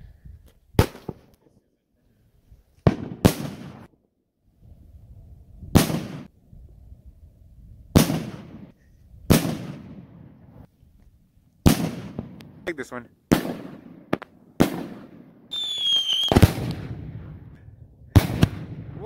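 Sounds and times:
fireworks bangs: 0.8 - 1.3, 2.8 - 3.9, 5.7 - 6.3, 7.9 - 10.7, 11.6 - 19.0.

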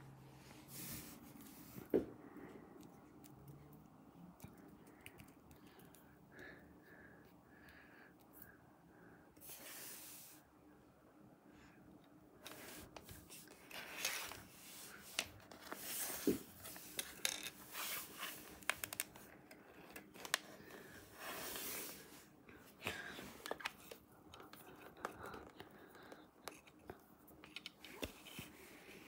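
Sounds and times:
rustling and crinkling: 12.4 - 29.0.

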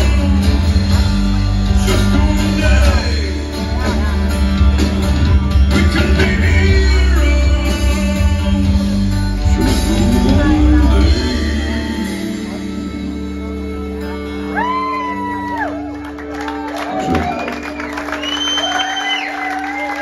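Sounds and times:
person singing: 0.0 - 15.4
low bass notes: 0.0 - 17.9
live rock band playing: 0.0 - 20.0.

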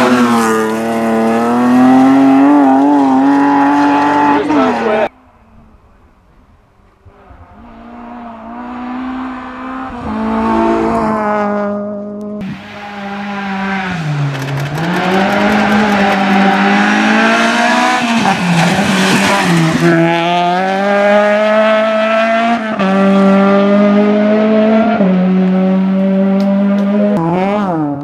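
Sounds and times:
rally car engine revving: 0.0 - 5.1, 7.0 - 28.0
tyres rushing on gravel: 12.5 - 17.2.

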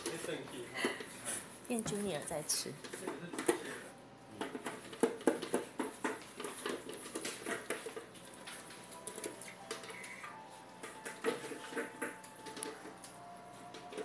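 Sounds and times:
dogs chewing and crunching: 2.8 - 14.0.

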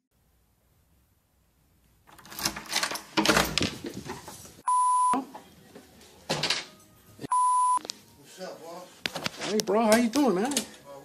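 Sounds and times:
door knob turning: 2.1 - 3.7
door pushed open: 2.1 - 3.9
rustling and clatter: 2.1 - 4.6
short bleep tones: 4.6 - 5.2, 7.3 - 7.8.

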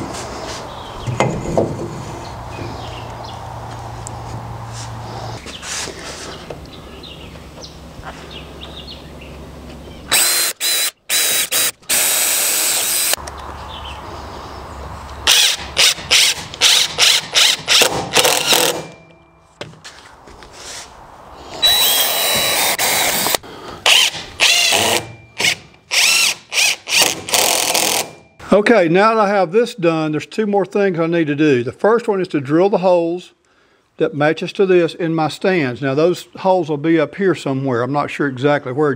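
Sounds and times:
cordless drill driving screws: 10.1 - 13.2, 15.3 - 18.9, 21.6 - 28.1.

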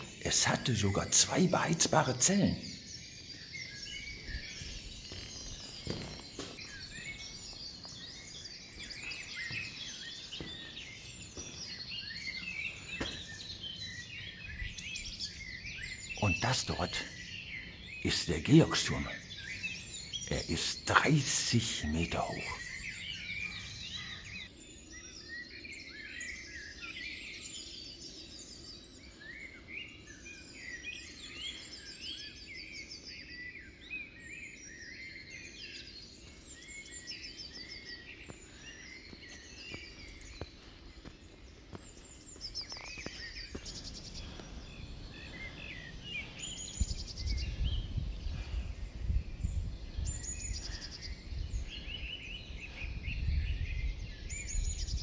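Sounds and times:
songbirds singing: 0.0 - 55.0.

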